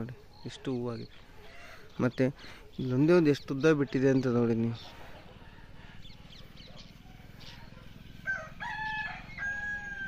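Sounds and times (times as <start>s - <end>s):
rooster crowing: 8.2s - 10.0s.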